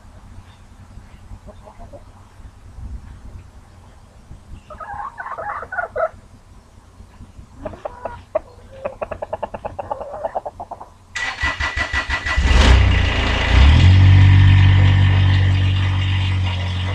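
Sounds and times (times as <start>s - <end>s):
rooster calling: 7.6s - 10.8s.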